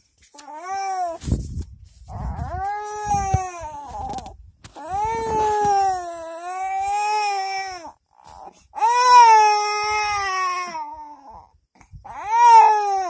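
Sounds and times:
infant crying: 0:00.4 - 0:01.2, 0:04.8 - 0:13.0.

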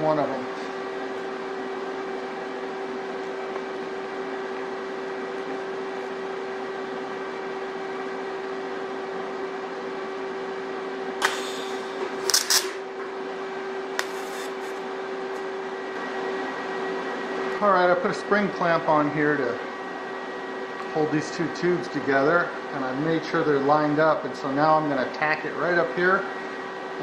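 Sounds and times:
steady hum: 0:00.0 - 0:27.0
welding arc crackling hiss: 0:11.2 - 0:12.8, 0:14.0 - 0:14.8.

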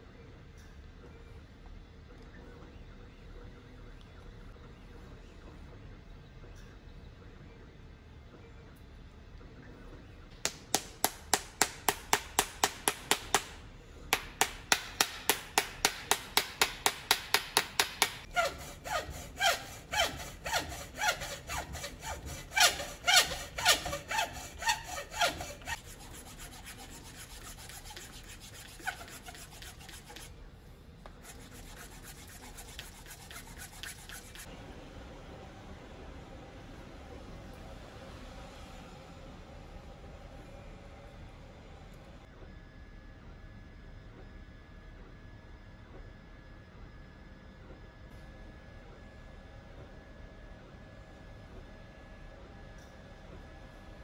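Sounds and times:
hacksaw sawing: 0:10.5 - 0:30.3, 0:31.2 - 0:34.5.

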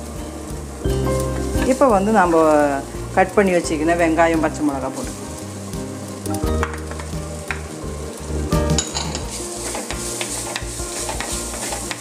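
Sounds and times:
shallots frying in oil: 0:00.0 - 0:12.0
wooden spoon scraping pot: 0:08.8 - 0:12.0.

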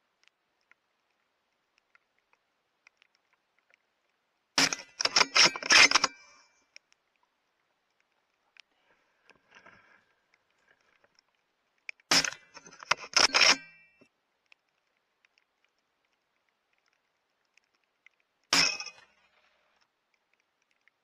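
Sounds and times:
rifle bolt metallic clicks: 0:04.6 - 0:06.2, 0:12.2 - 0:13.8
faint rustling: 0:06.3 - 0:12.7.

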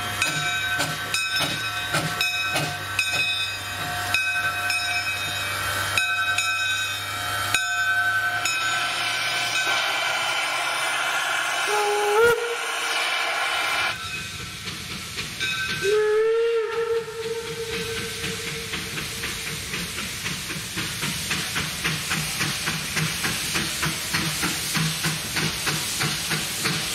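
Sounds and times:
steam locomotive hissing steam: 0:00.0 - 0:26.9
steam whistle blast: 0:09.6 - 0:14.0, 0:15.8 - 0:18.2.

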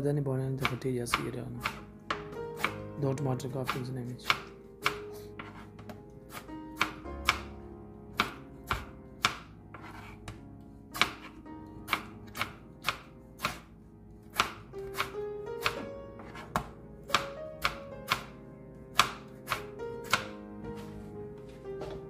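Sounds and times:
knife chopping on plastic board: 0:00.6 - 0:07.6, 0:08.2 - 0:10.4, 0:11.0 - 0:13.7, 0:14.3 - 0:18.3, 0:18.9 - 0:20.4.

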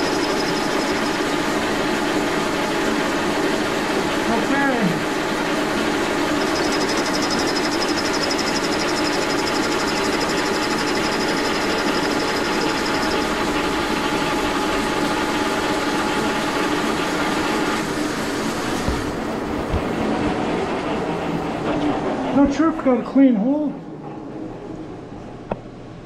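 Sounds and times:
fast fine high ticking: 0:00.0 - 0:01.3, 0:06.3 - 0:13.3
milling machine hum: 0:00.0 - 0:23.0.

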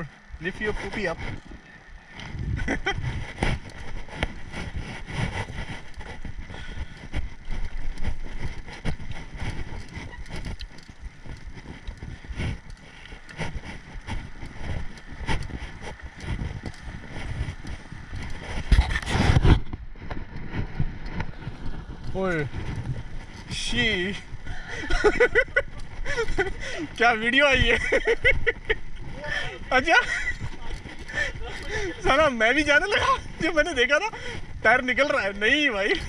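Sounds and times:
bike rattling and knocking: 0:00.0 - 0:36.0
wind noise on microphone: 0:00.0 - 0:36.0.

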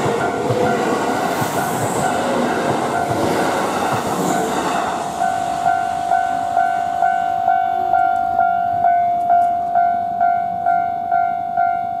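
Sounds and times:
train rumble: 0:00.0 - 0:10.7
level crossing alarm ringing: 0:05.1 - 0:12.0.

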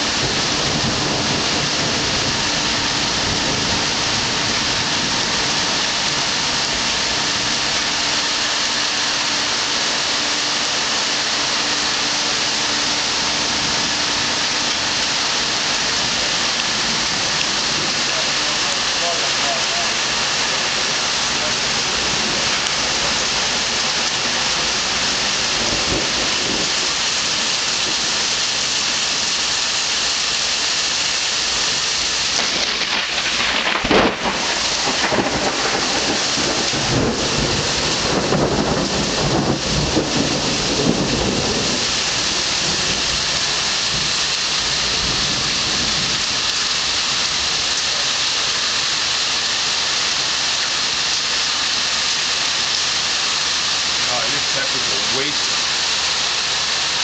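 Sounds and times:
rolling thunder rumble: 0:00.0 - 0:07.8, 0:13.4 - 0:28.4, 0:32.3 - 0:47.3
heavy rain hissing: 0:00.0 - 0:57.0
thunder crack: 0:32.3 - 0:41.9.

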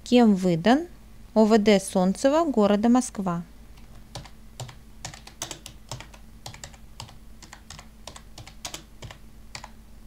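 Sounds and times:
faint low hum: 0:00.0 - 0:10.0
keyboard keystroke clicks: 0:03.8 - 0:09.8.

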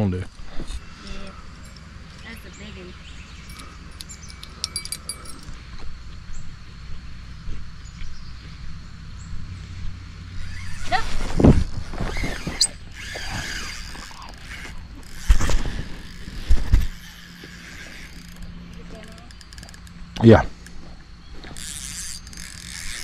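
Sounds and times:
wind rumble on microphone: 0:04.2 - 0:13.6.

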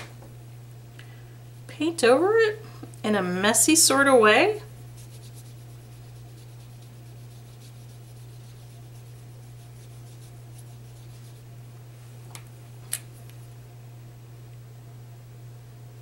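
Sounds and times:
steady low hum: 0:00.0 - 0:16.0
paintbrush brushing over cardstock: 0:04.8 - 0:11.5.

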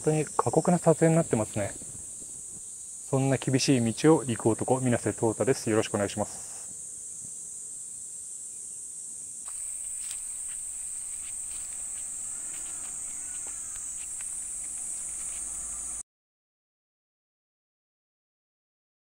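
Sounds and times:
high-pitched insect chorus: 0:00.0 - 0:16.0
footsteps on dirt trail: 0:09.5 - 0:16.0.

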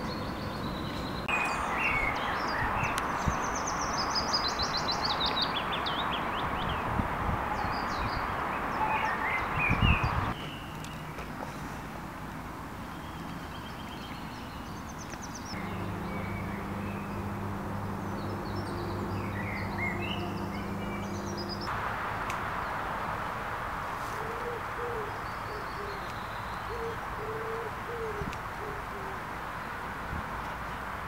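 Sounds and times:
small birds chirping: 0:00.0 - 0:07.0, 0:12.8 - 0:21.7
breeze rushing in trees: 0:00.0 - 0:31.0
steady low hum: 0:15.5 - 0:21.8
bird low hooting coos: 0:24.2 - 0:26.1, 0:26.7 - 0:29.3.

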